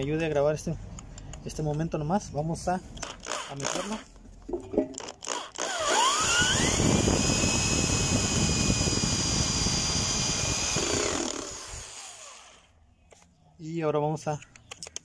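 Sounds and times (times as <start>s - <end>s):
power drill whining: 3.0s - 4.1s, 5.0s - 12.7s.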